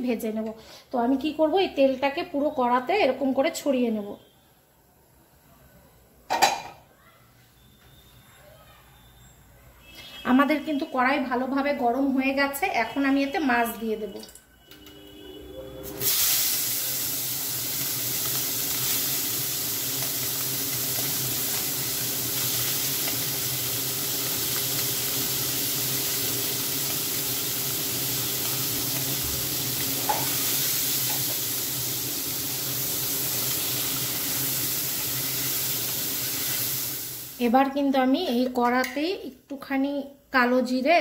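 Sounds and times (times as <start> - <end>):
fish sizzling in hot oil: 15.9 - 37.5.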